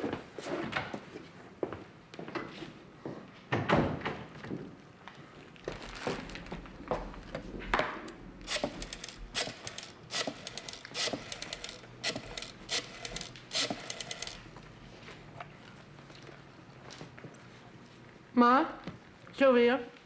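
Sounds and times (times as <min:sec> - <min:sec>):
rotary phone dial clicks: 0:08.5 - 0:14.5.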